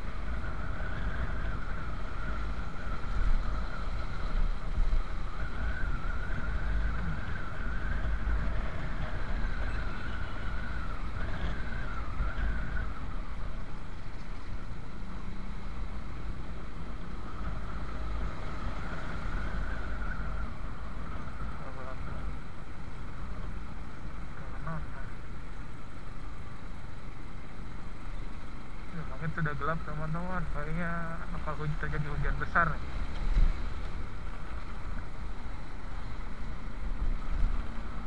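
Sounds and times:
wind rumble: 0:00.0 - 0:38.0.

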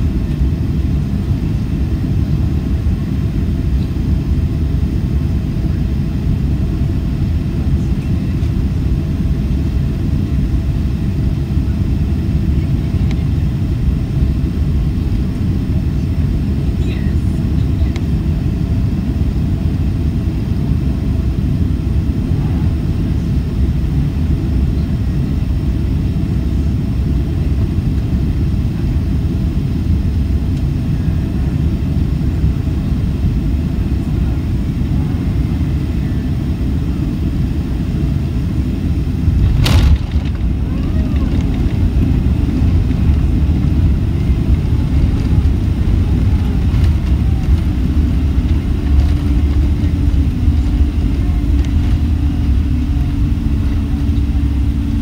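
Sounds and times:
airplane cabin engine rumble: 0:00.0 - 0:55.0.

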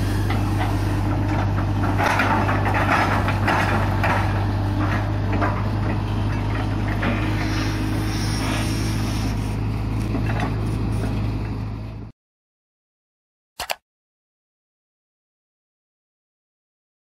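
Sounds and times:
excavator diesel engine running: 0:00.0 - 0:12.1
machine knocks and rattles: 0:00.2 - 0:07.3.

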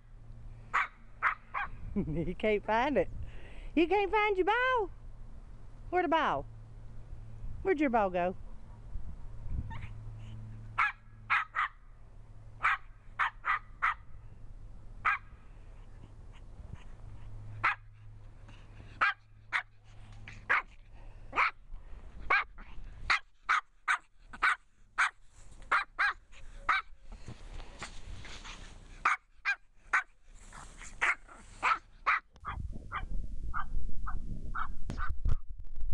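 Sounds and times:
small dog barking: 0:00.7 - 0:01.8, 0:10.8 - 0:11.8, 0:12.6 - 0:14.1, 0:15.0 - 0:15.3, 0:17.6 - 0:17.9, 0:19.0 - 0:19.7, 0:20.4 - 0:20.7, 0:21.3 - 0:21.6, 0:22.3 - 0:26.9, 0:29.0 - 0:30.1, 0:31.0 - 0:33.7.

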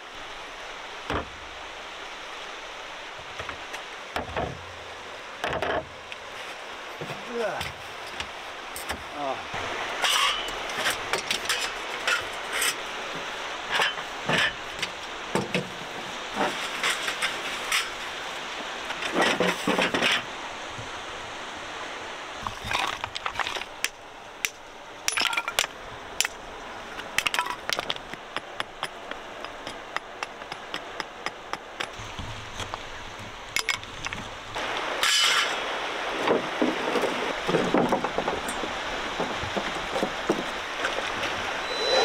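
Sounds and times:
camping gear clinking and knocking: 0:09.9 - 0:18.1, 0:18.9 - 0:20.4, 0:22.4 - 0:26.4, 0:27.0 - 0:35.6.

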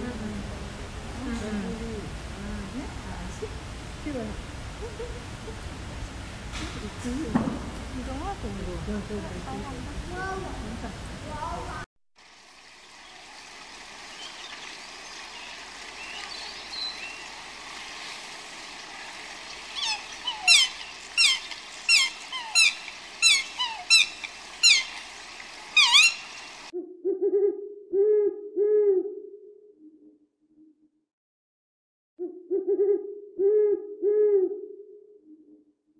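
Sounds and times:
outdoor hiss: 0:00.0 - 0:26.7
whistled bird calls: 0:14.1 - 0:17.3, 0:19.5 - 0:25.1, 0:25.7 - 0:26.6
owl hooting: 0:19.5 - 0:29.2.

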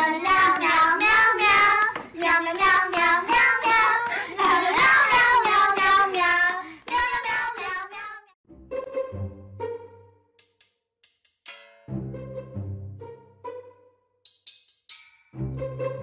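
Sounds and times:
high child-like voice singing: 0:00.0 - 0:08.4
breaths between phrases: 0:04.1 - 0:04.4, 0:06.6 - 0:06.9.

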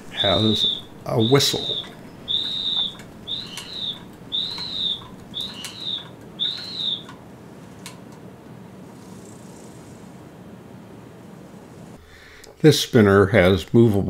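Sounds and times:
whirligig toy whistle: 0:00.1 - 0:07.1.

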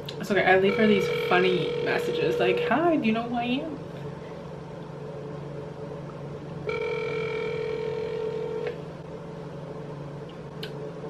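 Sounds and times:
phone ringback tone: 0:00.7 - 0:02.6, 0:06.7 - 0:08.7.

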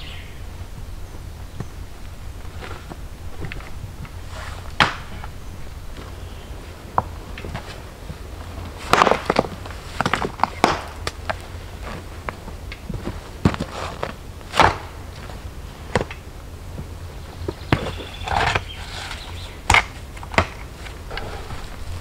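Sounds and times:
stone scraping: 0:21.1 - 0:22.0.

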